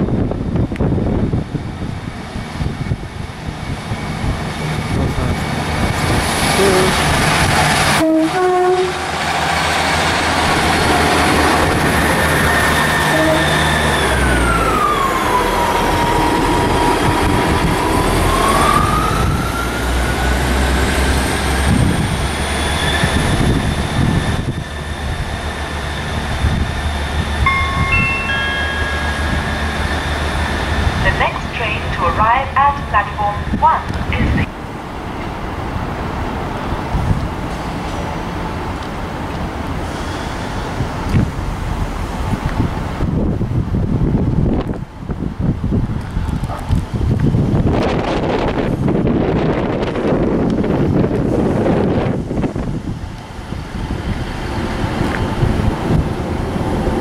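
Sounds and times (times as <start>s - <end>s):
diesel train engines running: 0.0s - 57.0s
whine changing pitch: 27.2s - 31.2s
short high tones: 27.4s - 30.3s.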